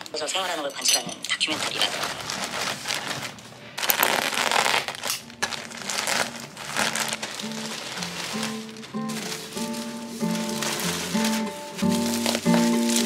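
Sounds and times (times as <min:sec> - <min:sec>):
plastic mailer and bubble wrap crinkling: 0:00.0 - 0:13.0
soft background music: 0:03.9 - 0:13.0.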